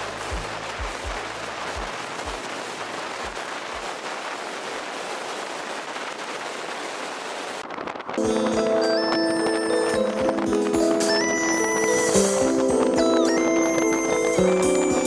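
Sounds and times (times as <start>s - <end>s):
road and wind noise: 0.0s - 15.0s
low thuds: 0.3s - 2.5s.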